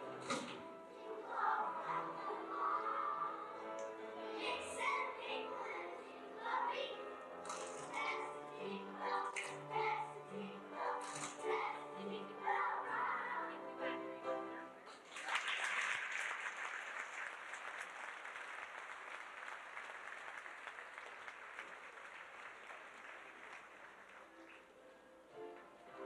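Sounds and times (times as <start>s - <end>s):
children's choir singing: 0.0s - 14.8s
audience applauding: 14.9s - 24.7s.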